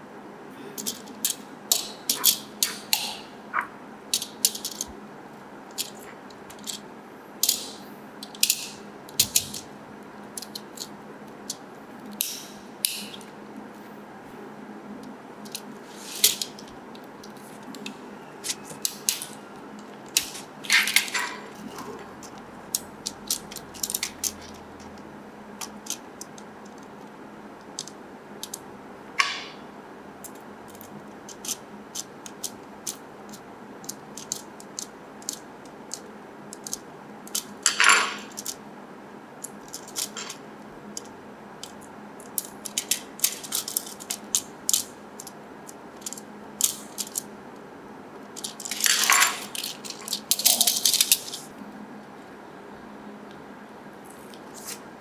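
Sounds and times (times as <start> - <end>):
clicks of small plastic parts: 10.4 - 13.3, 27.7 - 28.6, 30.2 - 38.6, 46.0 - 47.3, 48.4 - 51.4.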